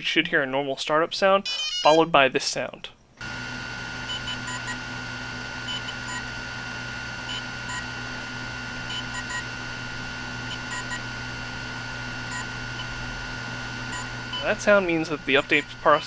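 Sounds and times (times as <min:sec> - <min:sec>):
low hum: 0:03.2 - 0:16.0
steady high whine: 0:03.2 - 0:16.0
short electronic beeps: 0:08.9 - 0:09.5, 0:10.5 - 0:11.0, 0:13.9 - 0:14.6.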